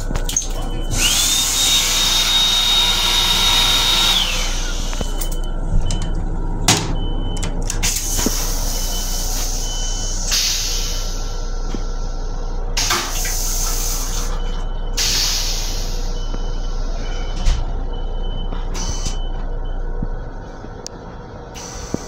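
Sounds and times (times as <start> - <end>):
toilet motor whine: 0.8 - 9.5
steady low hum: 3.2 - 22.0.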